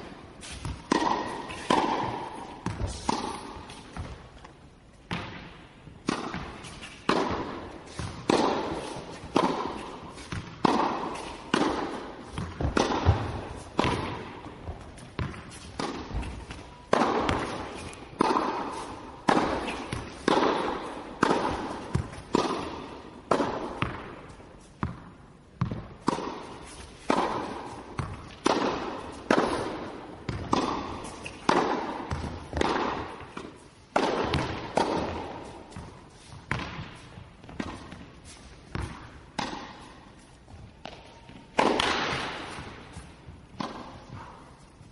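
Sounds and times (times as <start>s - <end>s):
tennis balls struck by rackets: 0.0s - 44.9s.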